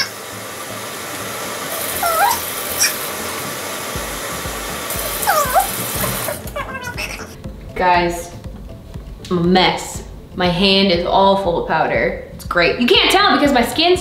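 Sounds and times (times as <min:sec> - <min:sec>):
high whining cries: 0:01.7 - 0:03.2, 0:04.9 - 0:07.4.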